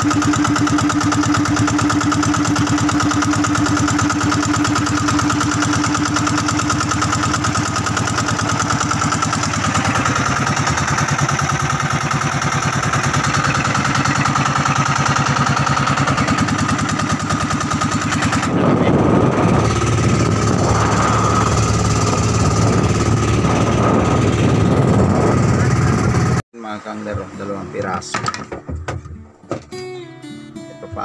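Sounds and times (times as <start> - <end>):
boat engine running: 0.0 - 26.4
loud rushing noise: 17.7 - 26.4.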